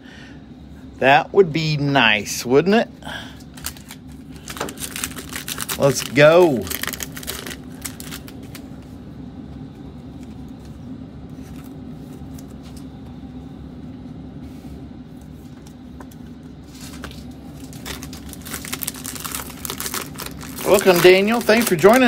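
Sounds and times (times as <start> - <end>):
low background hum: 0.0 - 22.0
plastic wrapper crinkling: 3.5 - 8.7, 16.8 - 22.0.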